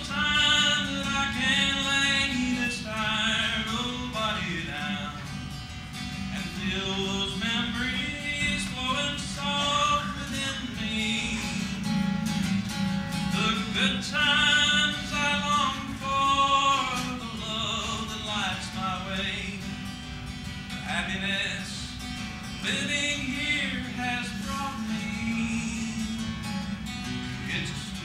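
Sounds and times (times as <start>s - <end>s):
man singing: 0.0s - 5.6s, 6.2s - 12.5s, 13.2s - 19.9s, 20.7s - 28.0s
acoustic guitar: 0.0s - 28.0s.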